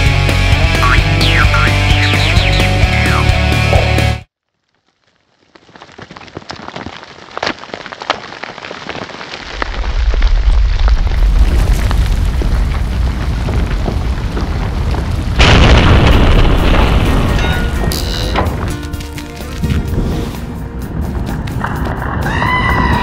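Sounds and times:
crackling with sharp cracks: 4.3 - 17.3
deep rumble: 9.5 - 18.7.

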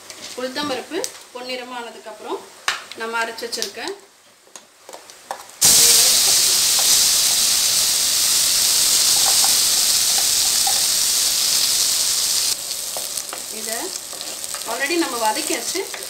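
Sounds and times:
paste sizzling in hot oil: 5.6 - 16.0.

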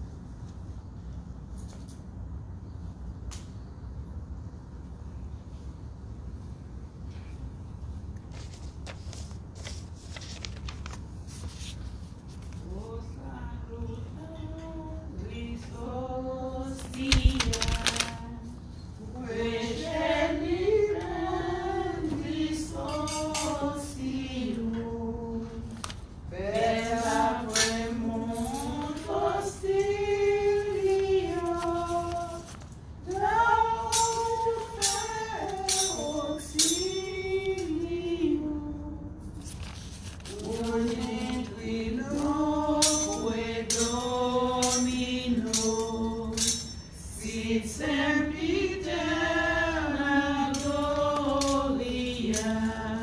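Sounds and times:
thurible chains clinking: 42.8 - 47.1.

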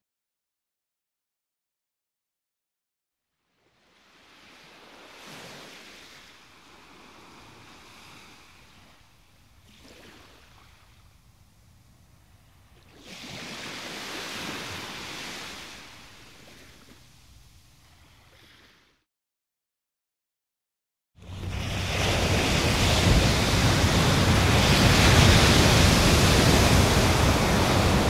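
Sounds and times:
sea waves sloshing: 4.1 - 11.2, 12.8 - 17.1, 17.7 - 18.9, 21.2 - 28.0.

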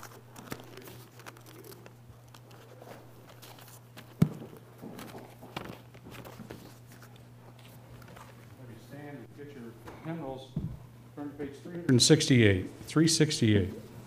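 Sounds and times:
steady low hum: 0.0 - 14.0
footsteps in a room: 2.7 - 8.8, 9.8 - 11.0.

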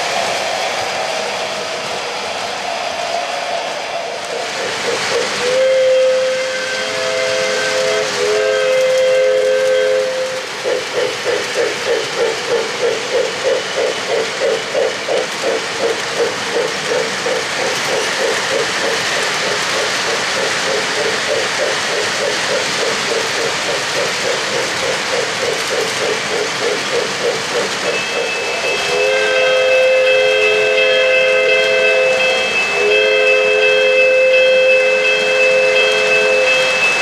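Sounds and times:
steady hiss: 0.0 - 37.0
fast pulsing chuffing: 3.8 - 31.3
model train steam whistle: 5.0 - 11.2, 27.9 - 37.0.

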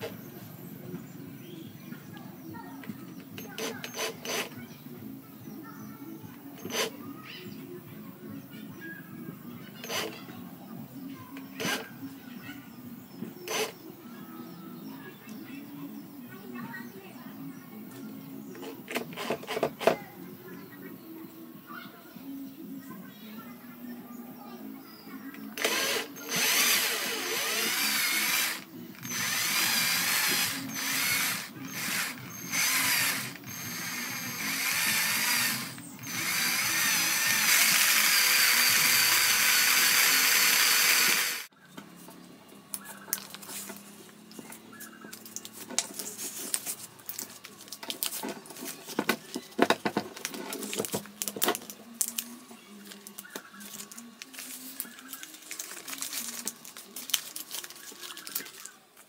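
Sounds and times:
cordless drill whirring gears: 3.3 - 4.6, 6.6 - 6.9, 9.8 - 10.2, 11.5 - 11.9, 13.5 - 13.8, 18.6 - 20.0, 25.6 - 41.5
rustling from hand work: 41.9 - 59.0.

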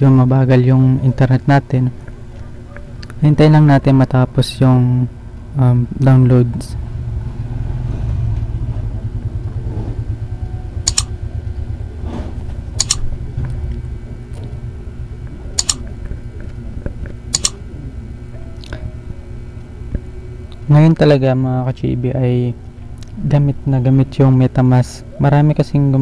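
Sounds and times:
sharp clicks: 10.8 - 11.2, 12.8 - 13.1, 15.6 - 15.9, 17.3 - 17.6.

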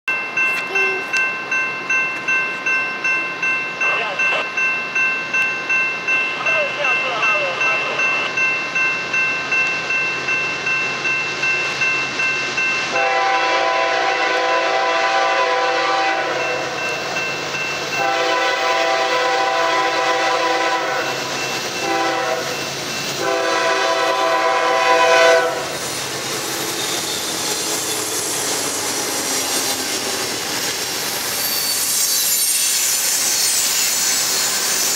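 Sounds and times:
crossing bell ringing: 0.1 - 34.9
locomotives rumbling on rails: 0.1 - 34.9
locomotive air horn: 12.9 - 16.8, 18.0 - 22.6, 23.2 - 25.8.

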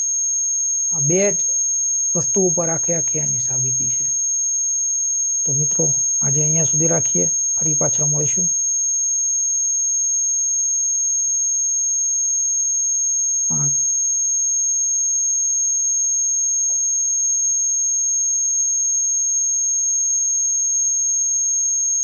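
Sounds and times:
high-pitched electronic tone: 2.2 - 4.2, 5.5 - 8.6, 13.5 - 13.9.

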